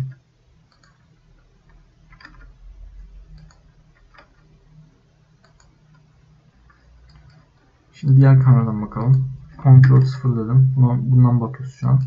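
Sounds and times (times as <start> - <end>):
mouse and keyboard clicks: 0.0 - 1.0, 1.6 - 2.6, 3.3 - 4.5, 5.4 - 6.1, 6.7 - 8.2
low steady hum: 0.0 - 12.0.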